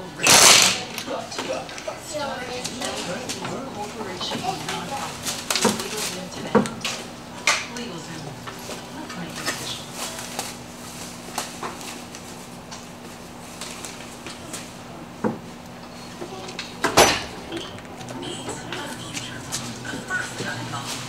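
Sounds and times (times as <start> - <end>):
steady low hum: 0.0 - 21.0
tools and car parts clinking: 16.8 - 17.9.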